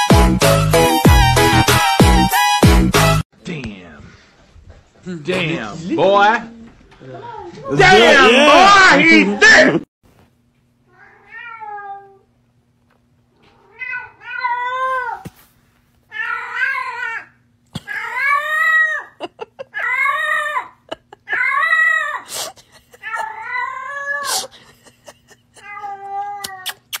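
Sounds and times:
cat meowing: 10.9s - 12.2s, 13.5s - 15.2s, 16.1s - 17.3s.

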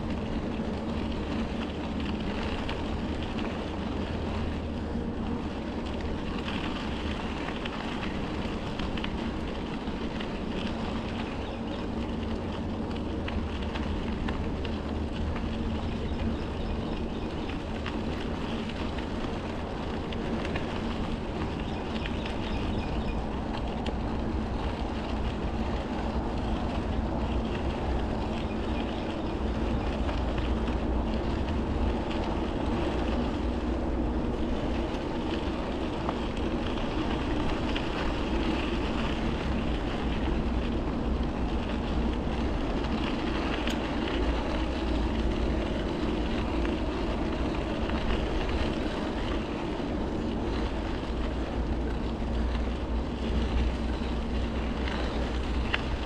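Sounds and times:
bicycle tyres rolling on trail: 0.0s - 56.0s
wind rumbling on microphone: 0.0s - 56.0s.

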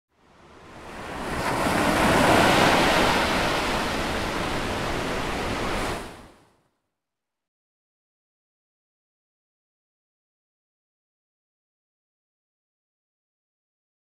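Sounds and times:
rushing water: 0.3s - 6.4s.

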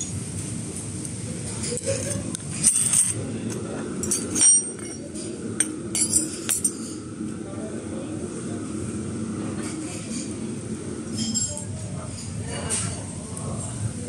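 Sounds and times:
murmur of diners: 0.0s - 14.0s
porcelain and cutlery clinking: 1.5s - 7.0s.

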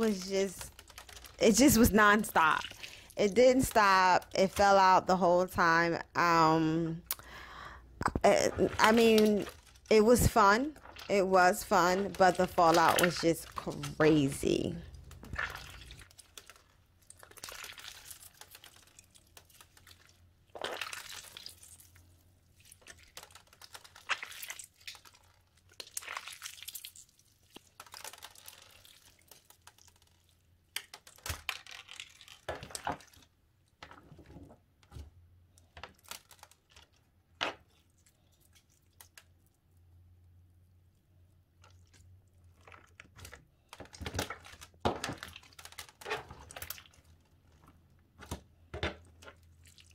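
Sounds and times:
bead slime crunchy crackling: 14.8s - 33.2s.

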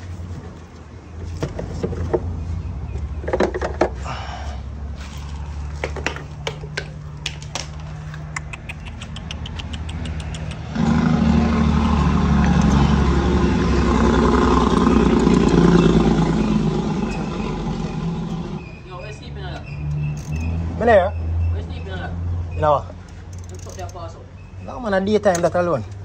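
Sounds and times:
vehicle engine running: 0.0s - 18.8s
low hum: 7.8s - 18.8s
tools clicking: 12.5s - 12.8s, 19.9s - 20.5s, 23.1s - 24.1s.

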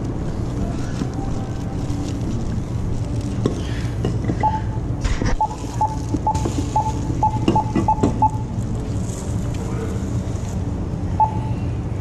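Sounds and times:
steady low hum: 0.0s - 12.0s
checkout register beeping: 4.4s - 4.8s, 5.4s - 8.5s, 11.2s - 11.6s.

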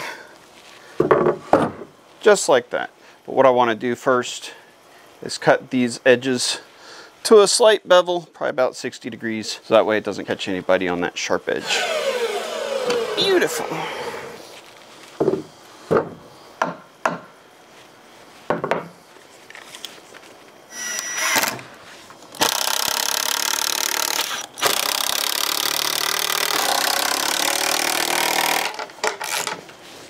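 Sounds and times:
cordless drill driving screws: 11.6s - 14.4s, 20.7s - 21.6s, 22.4s - 29.5s
wooden boards knocking: 15.2s - 17.2s, 18.5s - 18.9s.

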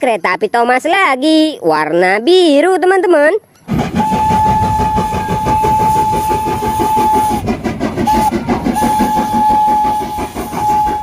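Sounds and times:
running locomotive rhythmic beat: 3.4s - 11.0s
steam locomotive whistle: 3.7s - 11.0s.

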